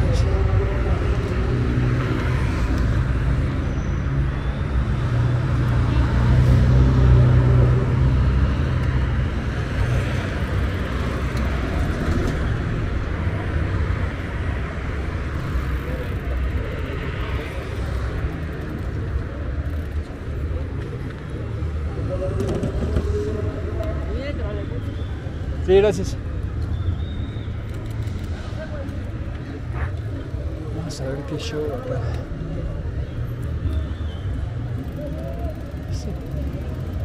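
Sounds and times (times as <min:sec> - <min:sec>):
traffic rumble: 0:00.0 - 0:37.0.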